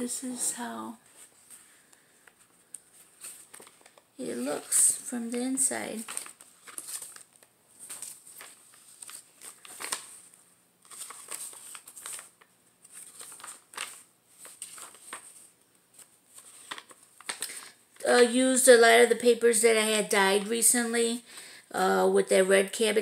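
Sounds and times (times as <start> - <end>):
paper pages rustling: 0.9 - 18.1.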